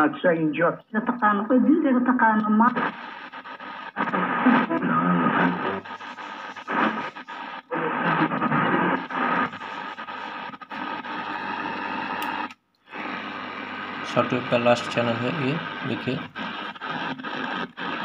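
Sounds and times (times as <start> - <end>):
broken radio broadcast voices: 0.0 - 18.0
radio static and hiss: 0.0 - 18.0.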